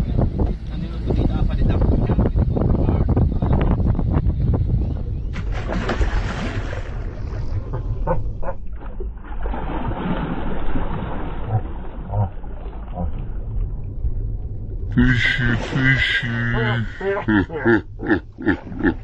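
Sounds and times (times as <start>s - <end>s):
wind rumble on microphone: 0.0s - 8.8s
fish splashing at water surface: 5.4s - 7.9s, 8.7s - 13.4s, 15.4s - 16.0s.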